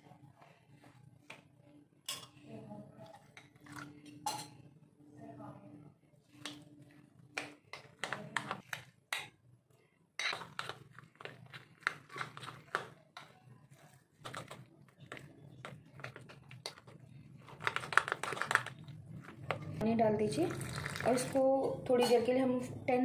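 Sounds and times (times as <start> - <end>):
spoon scraping glass bowl: 10.2 - 17.0.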